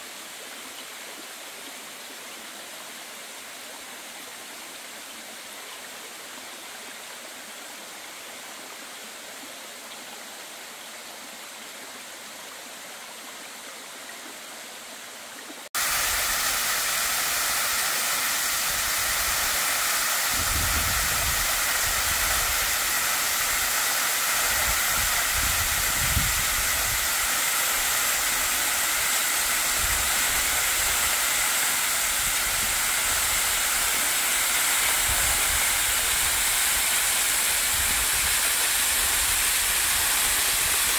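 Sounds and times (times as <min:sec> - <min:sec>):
waterfall rushing and splashing: 0:15.1 - 0:40.9.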